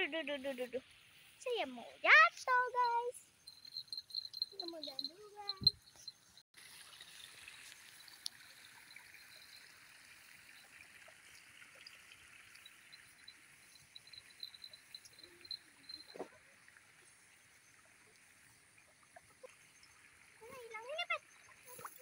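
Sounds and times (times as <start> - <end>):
quick high chirps: 2.8 - 6.4
small ticks and rustles: 2.8 - 22.0.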